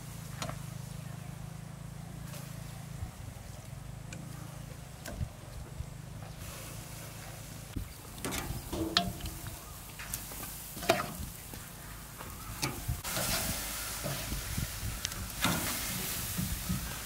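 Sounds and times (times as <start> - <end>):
meat sizzling on grill: 12.4 - 17.0.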